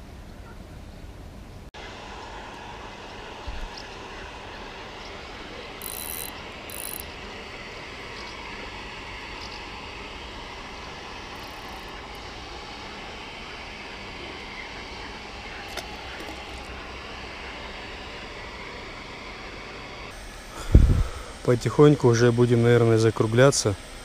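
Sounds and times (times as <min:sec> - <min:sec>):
fishing reel cranking: 0:05.8 - 0:07.1, 0:11.4 - 0:12.2
short hissing bursts: 0:17.7 - 0:24.0.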